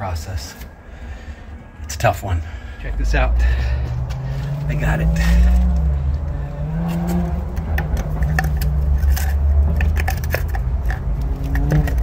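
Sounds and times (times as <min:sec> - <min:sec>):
plastic pipe scraping on concrete: 0:06.8 - 0:12.0.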